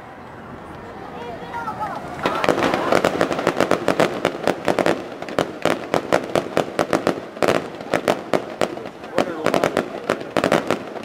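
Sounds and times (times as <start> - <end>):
fireworks bangs and crackles: 0.3 - 11.0.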